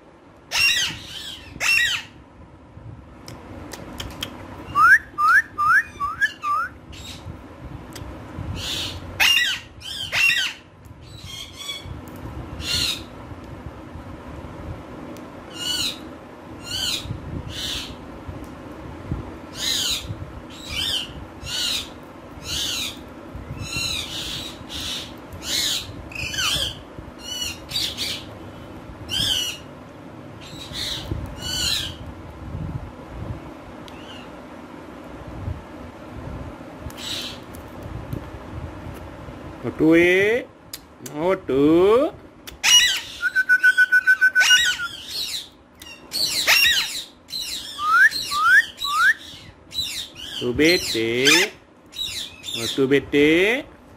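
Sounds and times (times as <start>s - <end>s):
parakeets calling: 0.5s - 2.2s, 5.8s - 7.3s, 8.6s - 13.2s, 15.5s - 18.1s, 19.5s - 29.7s, 30.4s - 32.0s, 33.9s - 34.4s, 36.9s - 37.5s, 42.6s - 53.4s
short rising whistles: 43.1s - 45.0s, 47.7s - 49.3s.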